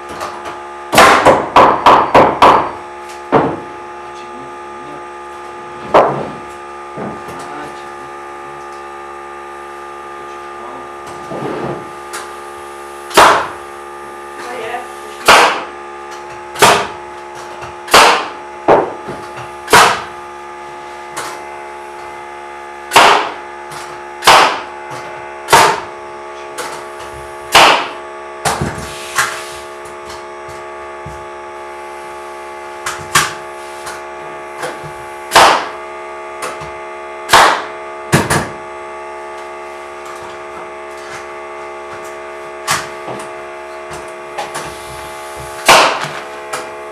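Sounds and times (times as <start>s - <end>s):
steady hum: 0.0s - 46.9s
pneumatic nail gun firing: 0.9s - 2.6s, 13.1s - 13.6s, 15.2s - 15.7s, 16.5s - 20.1s, 22.9s - 24.7s, 25.5s - 25.9s, 26.6s - 29.7s, 34.6s - 35.8s, 37.2s - 38.6s, 44.4s - 46.7s.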